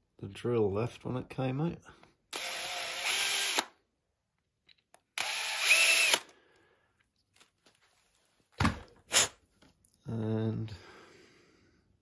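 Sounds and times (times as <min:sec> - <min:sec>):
cordless drill running: 0:02.3 - 0:03.8, 0:05.1 - 0:06.4.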